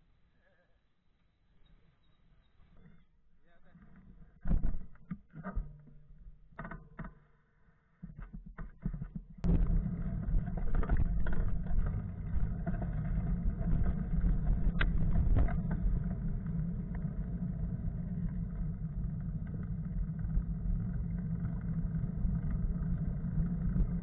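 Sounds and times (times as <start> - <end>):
wind rumble and road noise: 9.4 - 24.0.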